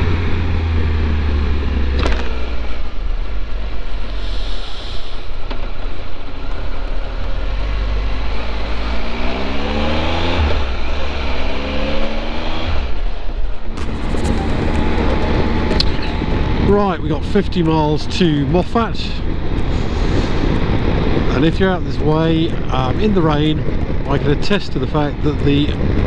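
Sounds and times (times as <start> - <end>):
road and wind noise: 0.0 - 26.0
motorcycle engine running: 5.8 - 26.0.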